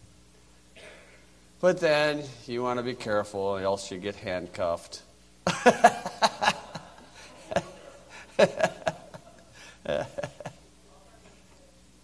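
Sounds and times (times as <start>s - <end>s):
people laughing: 5.5s - 10.8s.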